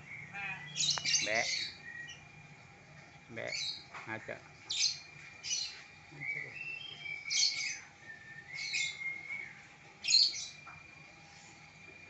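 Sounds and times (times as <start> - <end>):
myna squawking calls: 0.1 - 2.2.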